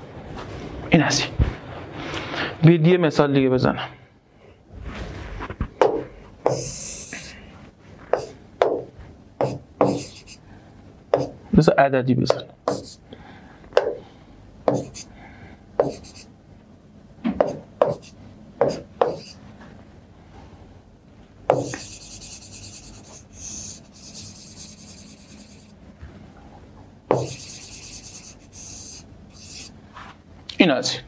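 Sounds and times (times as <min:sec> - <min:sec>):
stylus scratchy strokes: 0:21.6 - 0:25.7, 0:27.2 - 0:29.7.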